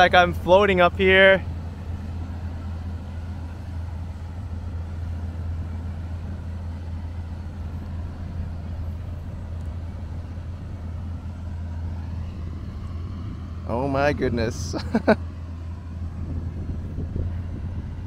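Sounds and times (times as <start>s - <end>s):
wind buffeting microphone: 1.5s - 18.0s.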